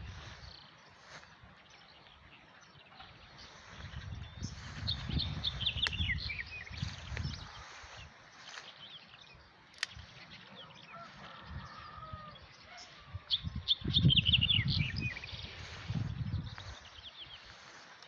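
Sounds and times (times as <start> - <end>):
small birds chirping: 0.0 - 18.0
low rumbling microphone noise: 3.2 - 7.9, 11.4 - 17.7.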